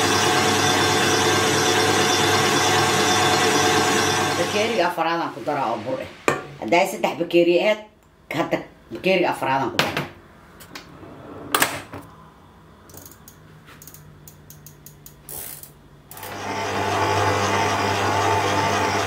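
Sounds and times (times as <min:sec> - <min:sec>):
stand mixer motor humming: 0:00.0 - 0:04.8, 0:16.2 - 0:19.0.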